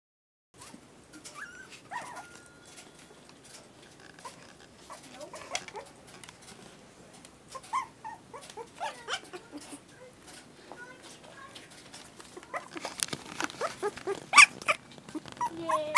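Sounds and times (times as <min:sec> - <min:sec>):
puppies whimpering and squeaking: 0:00.6 - 0:06.0, 0:07.5 - 0:09.9, 0:12.3 - 0:15.9.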